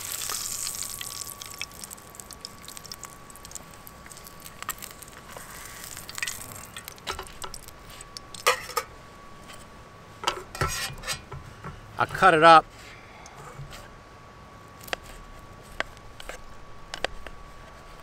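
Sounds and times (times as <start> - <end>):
pork sizzling in a fry pan: 0.0 - 8.8.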